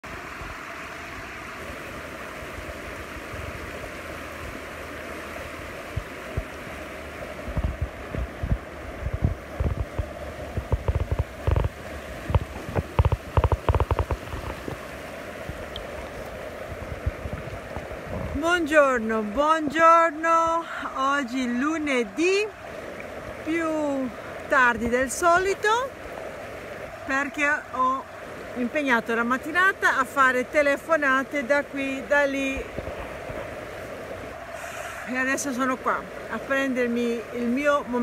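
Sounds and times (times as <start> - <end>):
river rushing over stones: 0.0 - 38.0
thumps on microphone: 7.5 - 14.9.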